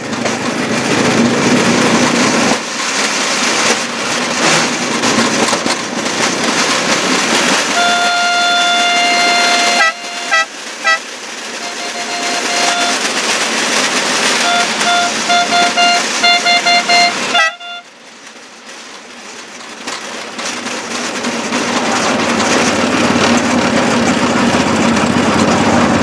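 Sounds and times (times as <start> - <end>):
rail vehicle rushing noise: 0.0 - 26.0
horn blasts and toots: 7.6 - 13.3, 14.2 - 18.0.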